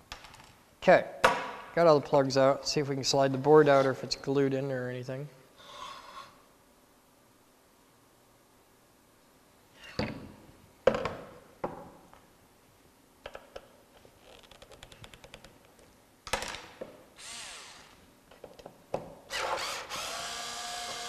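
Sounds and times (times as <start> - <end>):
electric screwdriver whirring: 19.3 - 21.0.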